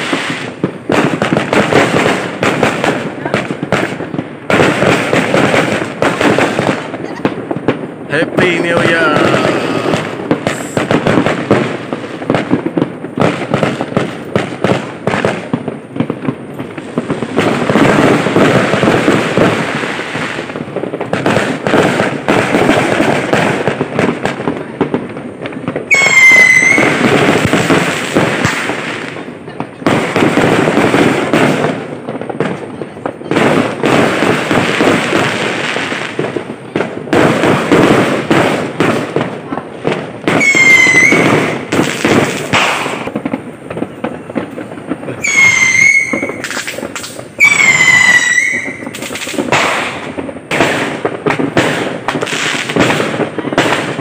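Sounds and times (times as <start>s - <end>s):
fireworks crackling and banging: 0.0s - 54.0s
firework whistle gliding down: 25.9s - 27.0s, 40.4s - 41.6s, 45.2s - 49.3s.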